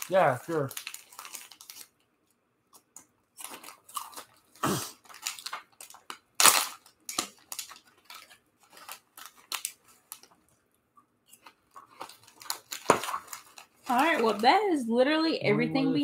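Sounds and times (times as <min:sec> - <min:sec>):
plastic wrappers crinkling: 0:00.0 - 0:14.8.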